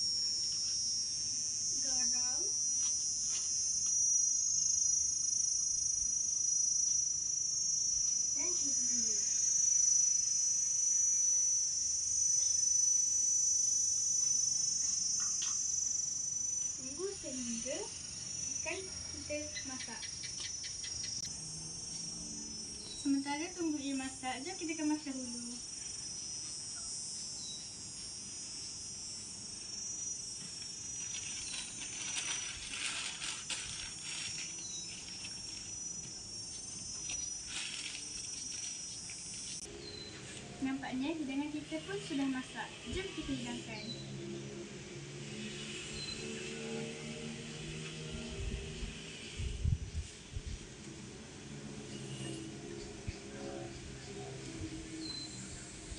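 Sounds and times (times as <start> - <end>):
insects shrilling: 0.0 - 44.6, 45.2 - 49.4
paper rustling: 31.0 - 35.8.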